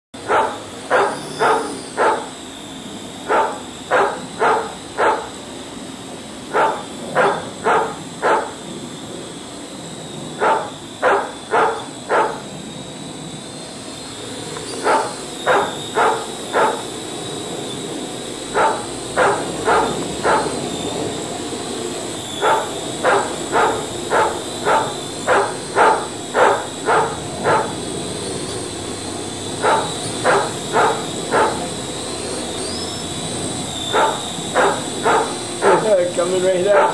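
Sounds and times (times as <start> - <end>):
dog barking angrily: 0.2 - 2.4, 3.2 - 5.4, 6.5 - 8.6, 10.4 - 12.4, 14.8 - 16.9, 18.4 - 20.8, 22.4 - 27.9, 29.5 - 32.1, 33.5 - 36.0, 36.6 - 36.9
steady high-pitched whine: 0.2 - 36.9.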